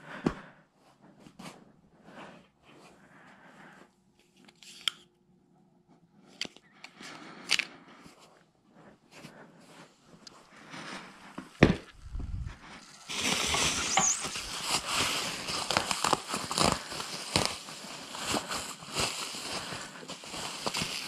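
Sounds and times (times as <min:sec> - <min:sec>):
bubble wrap crinkling: 0:11.9 - 0:21.0.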